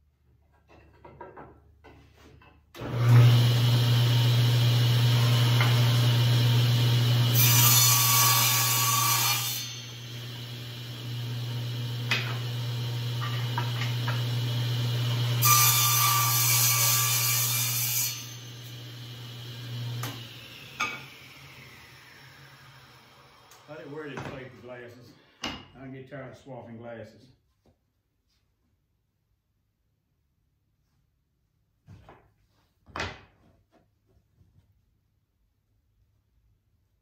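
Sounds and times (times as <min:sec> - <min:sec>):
table saw motor humming: 0:02.8 - 0:23.9
saw cutting wood: 0:02.8 - 0:24.8.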